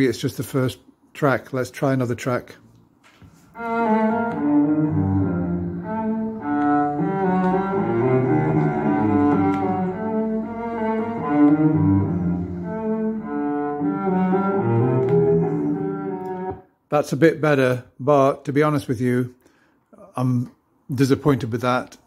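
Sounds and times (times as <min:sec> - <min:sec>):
classical music with bowed strings: 0:03.5 - 0:16.7.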